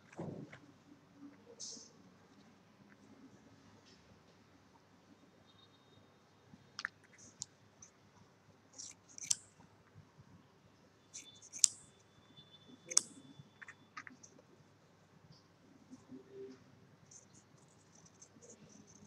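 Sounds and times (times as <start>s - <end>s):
scissors snipping felt: 8.8s - 9.5s, 11.2s - 11.8s, 12.9s - 13.2s.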